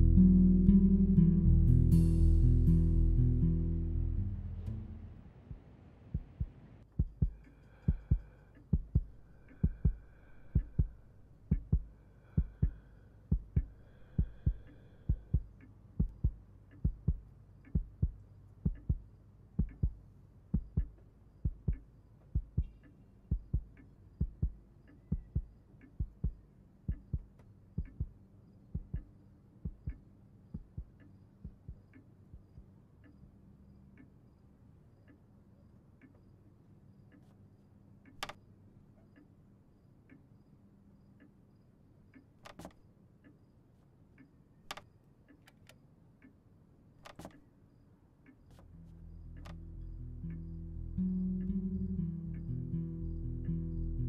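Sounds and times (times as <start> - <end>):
heartbeat thumps: 5.5 - 32.7.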